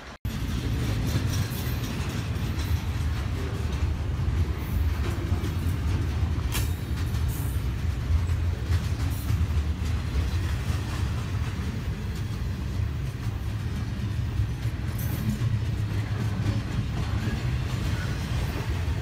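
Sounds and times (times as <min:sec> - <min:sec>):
sharp train clanks: 0:00.0 - 0:19.0
train rumbling on rails: 0:00.0 - 0:19.0.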